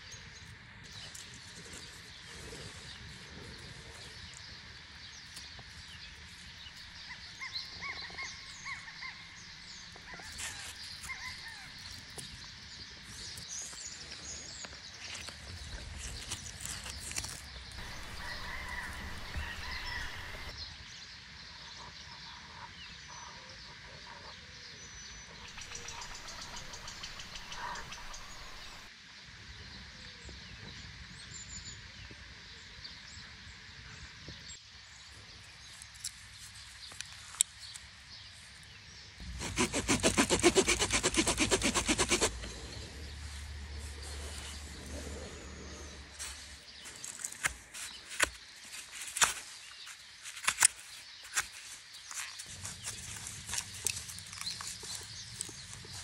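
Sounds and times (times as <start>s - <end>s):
saw rasping through branch: 16.1s - 20.5s, 25.4s - 28.9s, 39.2s - 42.7s
faint bird chirps: 17.8s - 20.5s, 25.2s - 28.9s.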